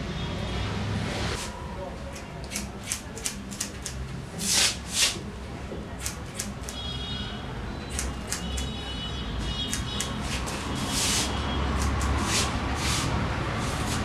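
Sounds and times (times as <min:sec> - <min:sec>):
scissors snipping hair: 0:02.1 - 0:04.7, 0:06.0 - 0:06.8, 0:07.9 - 0:08.7, 0:09.7 - 0:10.6, 0:11.8 - 0:12.5.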